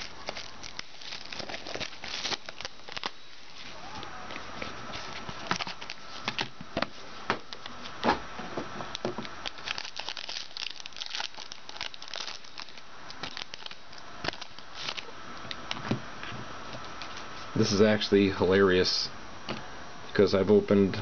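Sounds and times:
foil wrapper crinkling and tearing: 0.0s - 3.9s, 5.1s - 6.5s, 9.2s - 15.1s.

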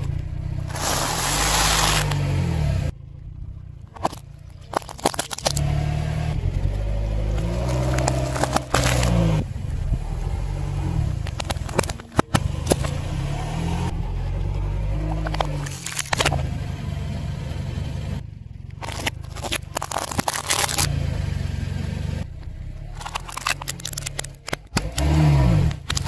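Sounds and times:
car engine at low revs: 0.0s - 26.0s
tyre crushing objects crackling: 0.6s - 2.4s, 4.0s - 9.5s, 18.8s - 21.0s
soda can crushed and bursting: 18.8s - 20.9s.

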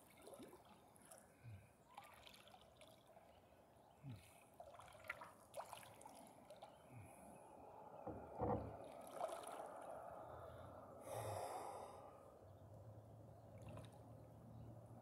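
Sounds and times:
water splashing and lapping: 0.0s - 6.9s, 8.2s - 10.1s, 13.5s - 14.2s.

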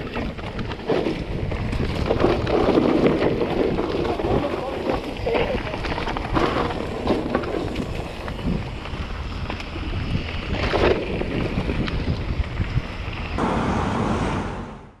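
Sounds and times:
bike clicks and knocks: 0.0s - 13.0s.

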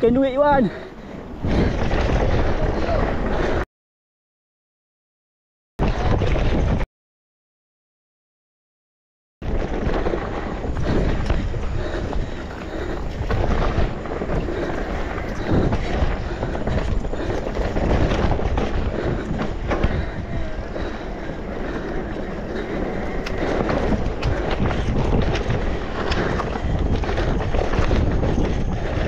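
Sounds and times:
bike rumbling on rough trail: 0.0s - 3.6s, 5.8s - 6.8s, 9.4s - 29.0s
wind buffeting microphone: 0.0s - 3.6s, 5.8s - 6.8s, 9.4s - 29.0s
bike clicks and knocks: 9.5s - 29.0s.

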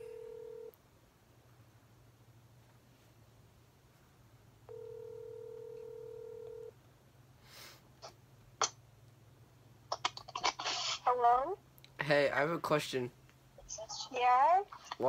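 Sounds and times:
phone ringback tone: 0.0s - 0.7s, 4.7s - 6.7s.

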